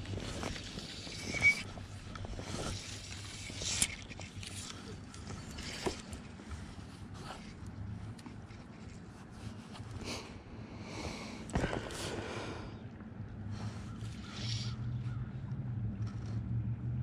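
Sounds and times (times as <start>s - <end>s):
fishing gear knocks and rustles: 0.0s - 9.1s.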